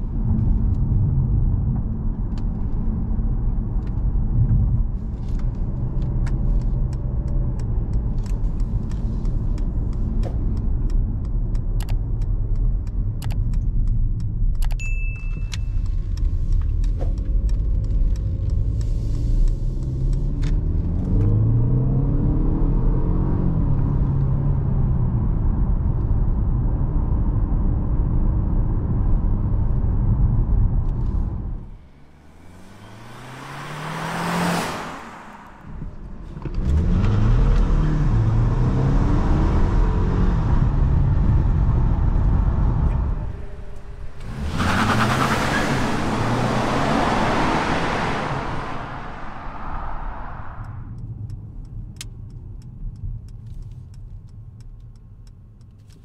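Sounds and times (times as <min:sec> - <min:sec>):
road rumble in car cabin: 0:00.0 - 0:56.0
rushing wind and road noise: 0:00.0 - 0:56.0
car engine accelerating: 0:16.0 - 0:53.7
faint ticks: 0:50.6 - 0:56.0.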